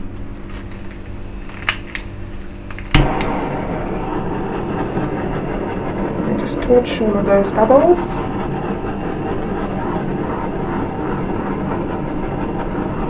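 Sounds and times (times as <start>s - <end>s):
torch flame hissing: 0.0s - 13.0s
gas torch ignition click: 0.1s - 3.4s.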